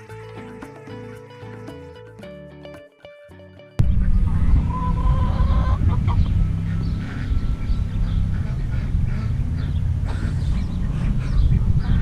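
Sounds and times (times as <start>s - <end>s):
wind rumbling on microphone: 3.8s - 12.0s
ducks quacking faintly: 3.9s - 12.0s.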